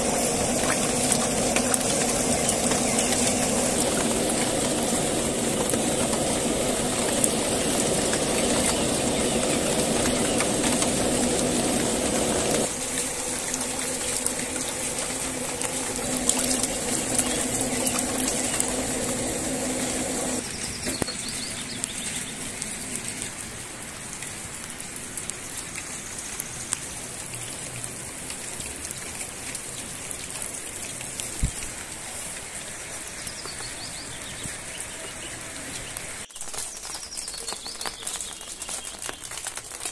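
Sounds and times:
motor hum: 0.0s - 20.6s
birds chirping: 0.0s - 22.6s, 33.0s - 39.4s
rain hiss: 0.0s - 39.9s.

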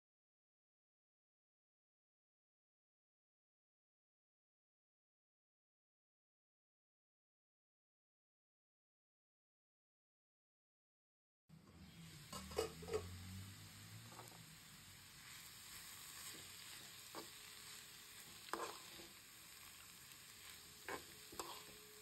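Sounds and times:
vegetables sizzling in a pan: 11.5s - 22.0s
metal spoon scraping a pan: 12.0s - 13.3s, 15.2s - 22.0s.

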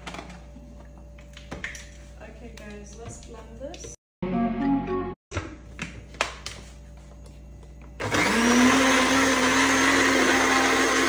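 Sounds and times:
electric blender whining: 8.0s - 11.0s.

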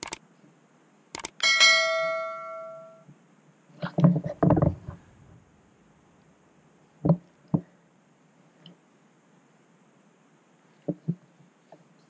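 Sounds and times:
notification bell ding: 1.4s - 3.0s.

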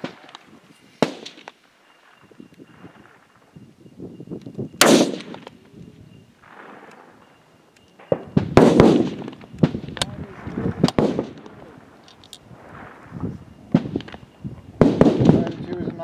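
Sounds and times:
rifle shot with echo: 1.0s - 1.6s, 4.8s - 5.7s, 6.4s - 7.4s, 8.0s - 11.7s, 14.8s - 15.7s.

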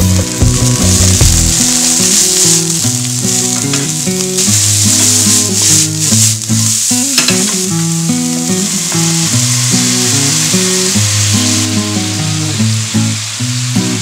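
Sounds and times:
background music: 0.0s - 7.3s
mushrooms sizzling in a pan: 0.0s - 14.0s.

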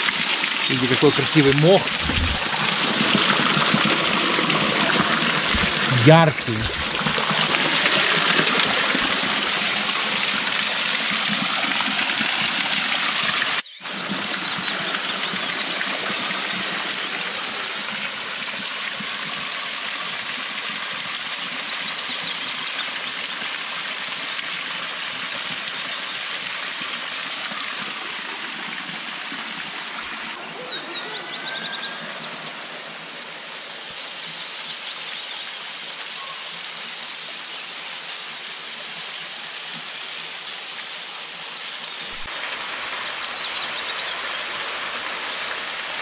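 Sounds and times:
waterfall splashing on rock: 0.0s - 30.4s, 42.1s - 46.0s.

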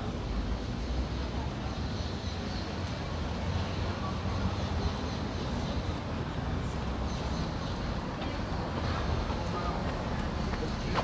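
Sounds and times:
passing traffic rumble: 0.0s - 11.0s.

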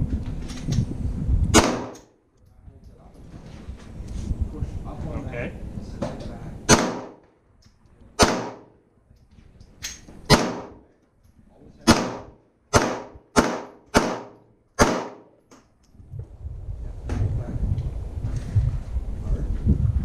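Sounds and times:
pistol shots with echo: 1.6s - 2.1s, 6.7s - 7.2s, 8.2s - 8.8s, 10.3s - 10.8s, 11.8s - 15.4s.

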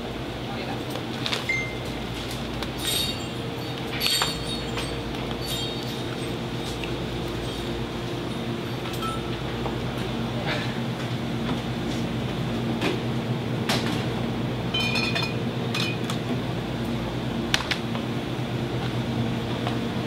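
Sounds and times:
refrigeration hum: 0.0s - 20.0s
glass bottles clinking: 2.7s - 9.4s, 14.7s - 16.1s.

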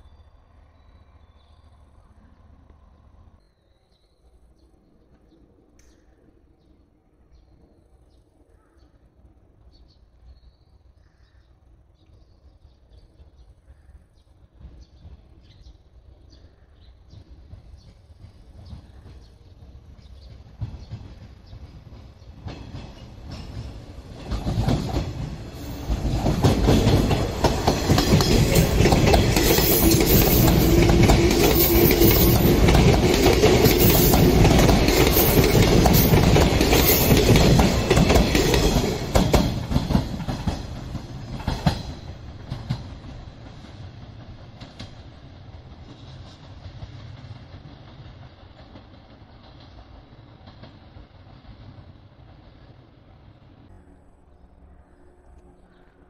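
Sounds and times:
train wheels clicking over rail joints: 17.0s - 52.3s.

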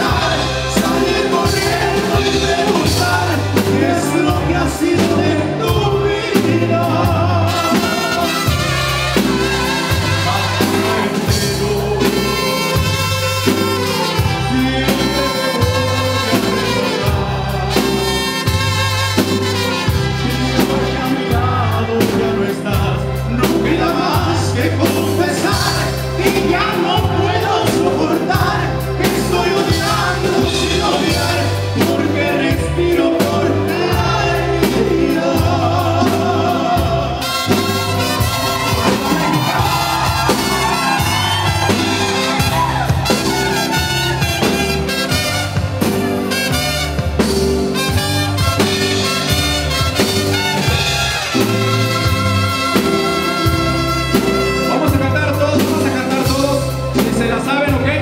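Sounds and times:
person singing: 0.0s - 18.6s
trumpets: 0.0s - 31.8s, 35.7s - 56.2s
live band playing: 0.0s - 58.0s
pulsing bass line: 0.0s - 58.0s.

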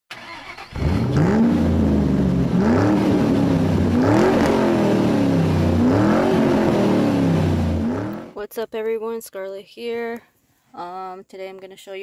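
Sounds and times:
car engine revving: 0.2s - 8.4s.

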